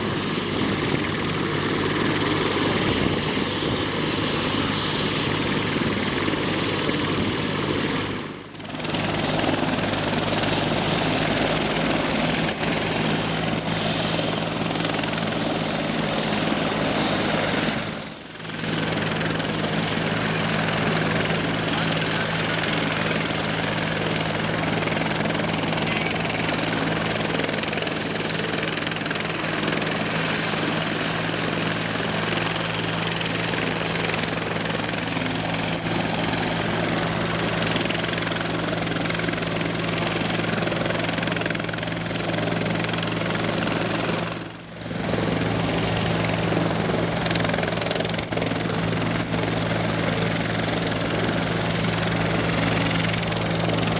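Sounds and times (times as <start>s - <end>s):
helicopter rotor and engine drone: 0.0s - 53.9s.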